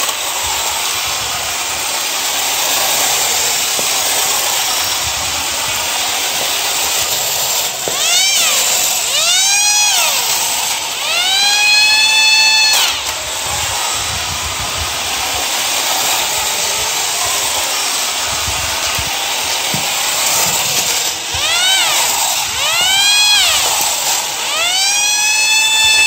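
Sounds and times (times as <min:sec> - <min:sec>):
toy motor and gears whirring: 0:00.0 - 0:26.0
toy siren wailing: 0:06.6 - 0:26.0.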